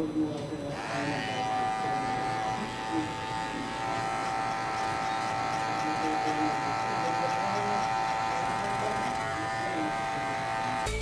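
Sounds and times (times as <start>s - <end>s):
hair clipper buzzing: 0.7s - 11.0s.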